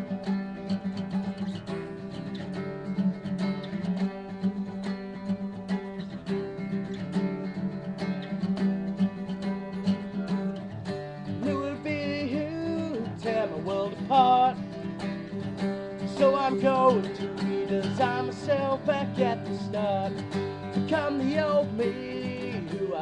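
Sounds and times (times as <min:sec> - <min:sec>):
acoustic guitar strumming: 0:00.0 - 0:23.0
person singing: 0:11.2 - 0:23.0.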